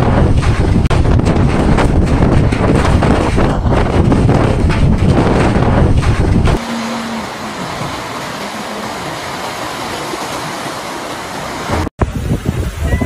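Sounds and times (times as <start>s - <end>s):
wind buffeting microphone: 0.0s - 10.8s, 11.5s - 13.0s
heavy rain hissing: 6.6s - 13.0s.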